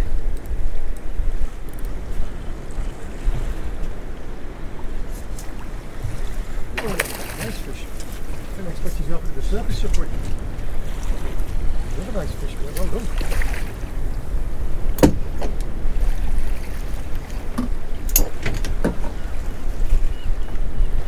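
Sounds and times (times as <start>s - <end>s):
sea rumble: 0.0s - 21.0s
water washing against boat: 0.0s - 21.0s
wind buffeting microphone: 0.0s - 21.0s
knocks and clicks on boat: 9.5s - 11.6s, 14.8s - 19.4s.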